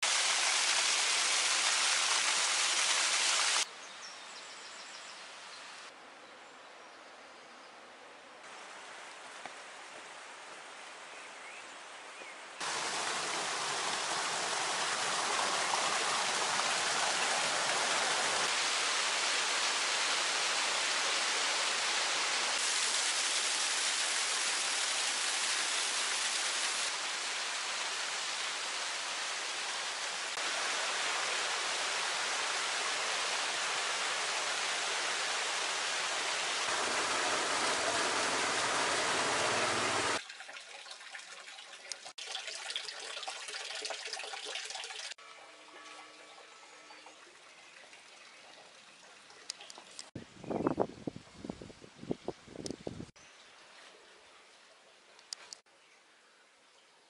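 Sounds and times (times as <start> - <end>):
waterfall rushing over rocks: 0.0 - 3.7, 12.6 - 40.2.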